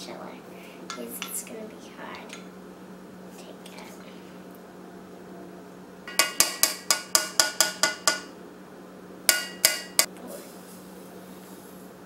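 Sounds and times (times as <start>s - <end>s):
spatula rapping on cookware: 6.1s - 8.3s, 9.3s - 10.1s.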